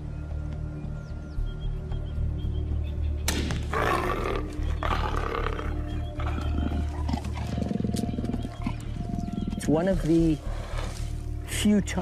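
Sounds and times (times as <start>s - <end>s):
low background music: 0.0s - 12.0s
leopard growling: 3.7s - 11.3s.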